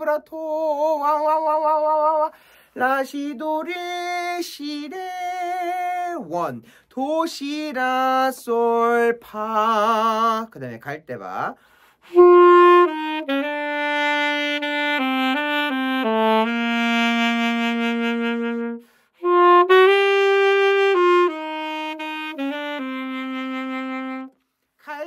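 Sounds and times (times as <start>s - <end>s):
alto saxophone melody: 12.0s - 24.6s.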